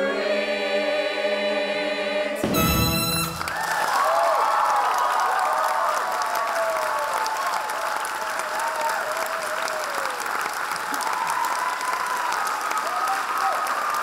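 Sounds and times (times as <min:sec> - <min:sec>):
audience clapping: 0:02.5 - 0:14.0
voices whooping and cheering: 0:03.5 - 0:14.0.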